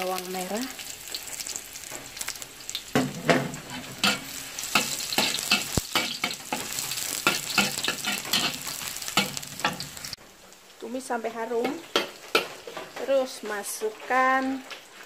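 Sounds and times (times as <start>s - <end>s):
shallots sizzling in hot oil: 0.0s - 15.0s
metal spatula scraping wok: 3.0s - 10.2s.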